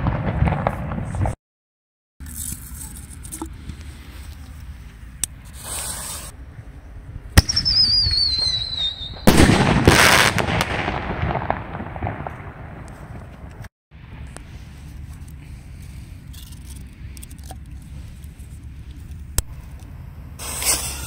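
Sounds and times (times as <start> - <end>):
falling whistle: 7.5 - 9.3
mortar launch crack: 9.2 - 12.6.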